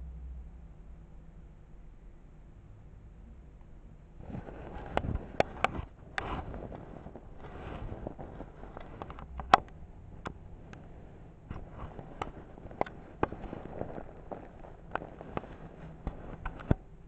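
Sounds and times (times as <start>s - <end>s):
bedding rustling: 4.2s - 17.0s
handling clicks and taps: 8.1s - 10.9s, 11.5s - 16.9s.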